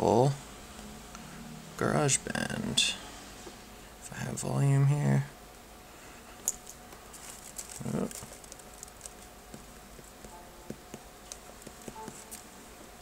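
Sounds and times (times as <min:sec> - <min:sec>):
fingertips tapping touchscreen: 0:09.5 - 0:12.5.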